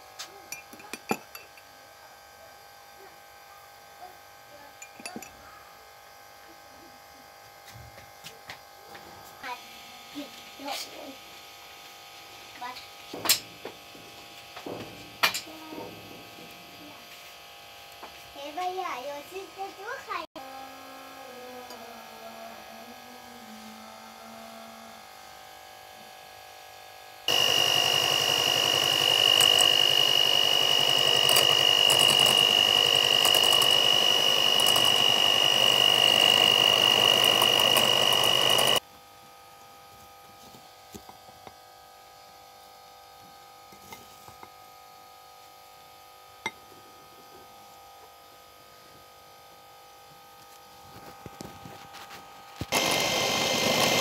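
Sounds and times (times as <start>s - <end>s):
electric hand mixer whining: 27.3s - 38.8s, 52.6s - 54.0s.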